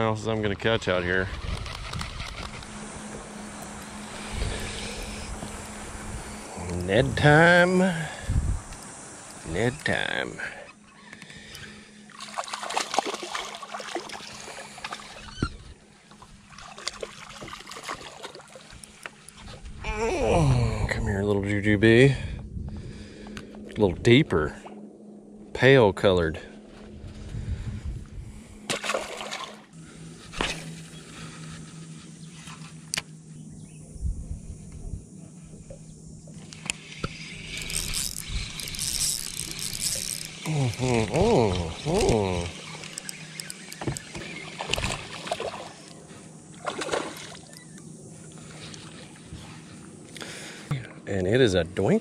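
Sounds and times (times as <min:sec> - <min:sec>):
fishing reel whirring: 0:00.8 - 0:20.6, 0:35.8 - 0:50.0
fish splashing in water: 0:12.1 - 0:15.3, 0:16.5 - 0:18.8, 0:28.7 - 0:29.7, 0:44.2 - 0:45.9, 0:46.6 - 0:47.6.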